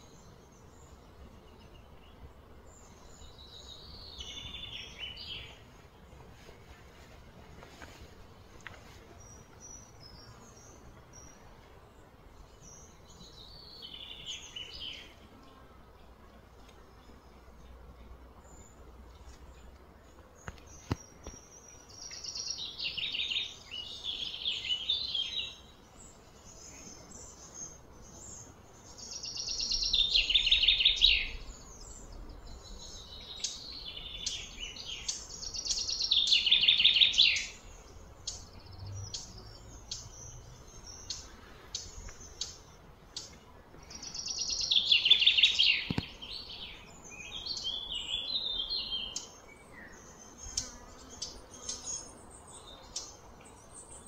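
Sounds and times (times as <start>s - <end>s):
soft bird chirps: 16.7s - 54.0s.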